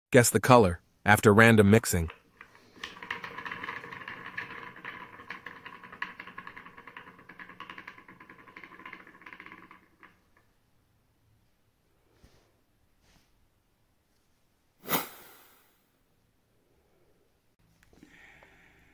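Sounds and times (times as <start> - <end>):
spoked wheel whirring and ticking: 2.1 - 10.5.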